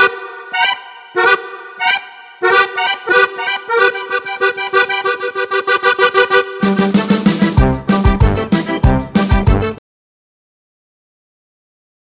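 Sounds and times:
music with short clipped chords: 0.5 - 9.8.

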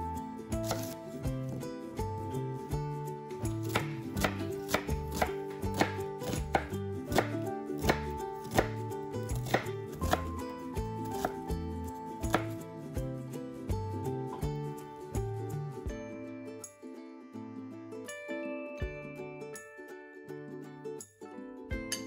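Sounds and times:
background music: 0.0 - 22.0
knife chopping on wooden board: 0.6 - 1.0, 3.7 - 8.8, 9.4 - 10.3, 12.3 - 12.6.

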